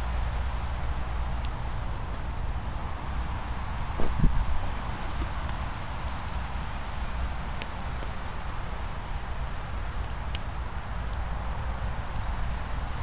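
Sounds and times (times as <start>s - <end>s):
low rumble and hiss: 0.0s - 13.0s
small bird chirping: 8.0s - 12.8s.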